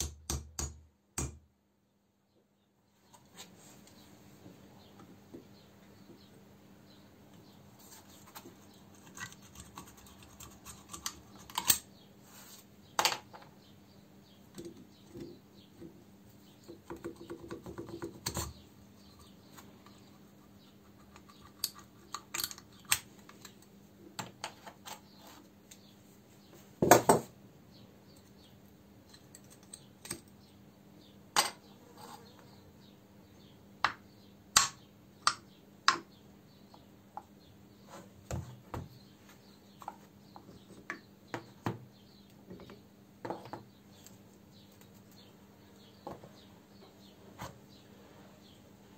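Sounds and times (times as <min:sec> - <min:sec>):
metal tools clicking and clinking: 0:21.6 - 0:22.7.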